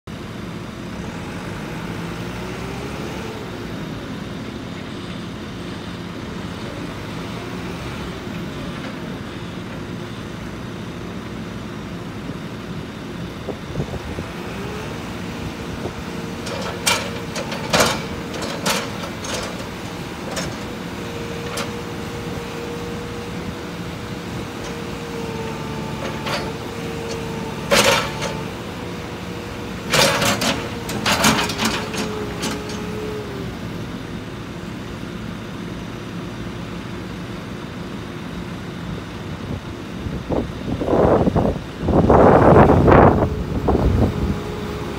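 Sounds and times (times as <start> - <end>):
diesel engine running: 0.1 - 44.9
hydraulic whine: 41.0 - 44.9.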